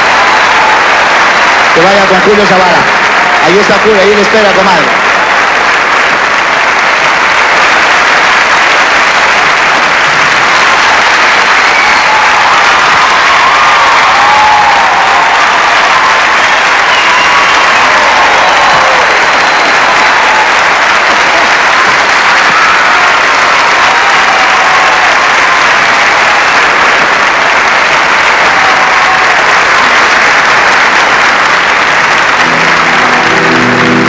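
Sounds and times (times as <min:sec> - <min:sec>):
audience applauding: 0:00.0 - 0:34.0
band music: 0:32.4 - 0:34.0.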